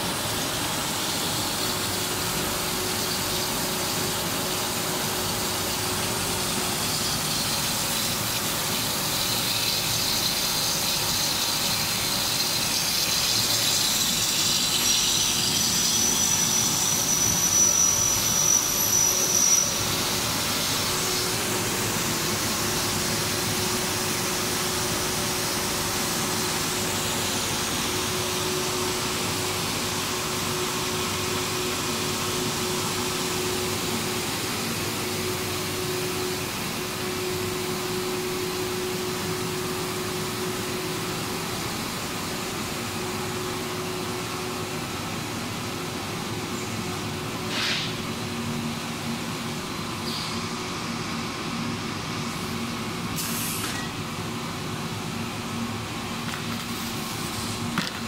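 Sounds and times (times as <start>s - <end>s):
machine hum with faint whine: 0.0s - 58.0s
high hiss and thin whistle: 16.0s - 19.7s.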